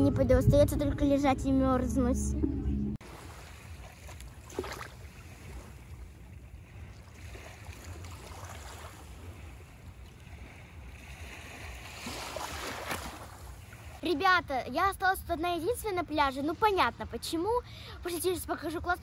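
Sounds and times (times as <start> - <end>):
wind rumbling on microphone: 0.0 - 14.0
small waves washing on shore: 3.0 - 14.4.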